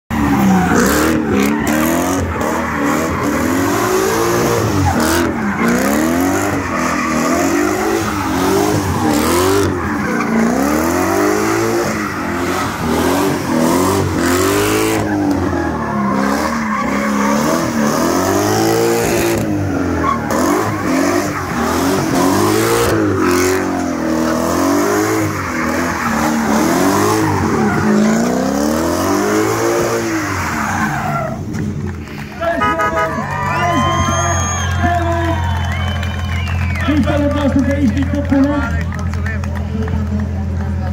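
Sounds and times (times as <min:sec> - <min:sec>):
car engine revving: 0:00.1 - 0:40.9
tyres screeching: 0:00.2 - 0:31.5.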